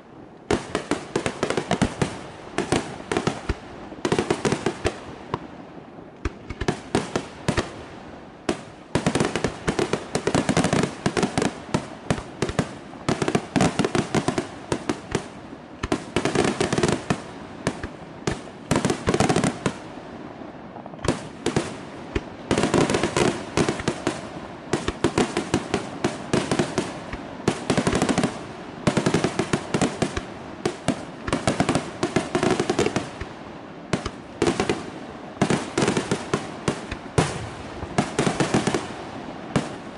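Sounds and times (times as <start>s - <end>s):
fireworks bursts and bangs: 0.4s - 39.9s.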